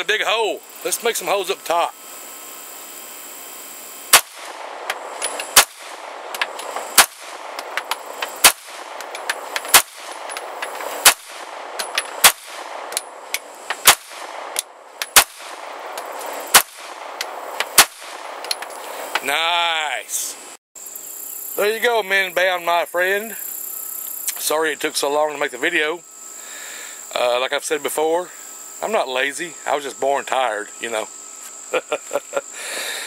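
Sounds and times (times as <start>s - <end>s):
pistol single shots: 4.1s - 18.6s.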